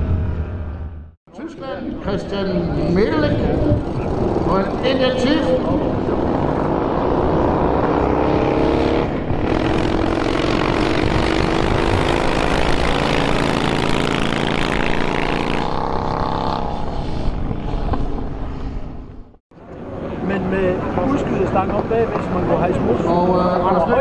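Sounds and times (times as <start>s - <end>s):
motorcycles accelerating hard: 2.1s - 18.3s.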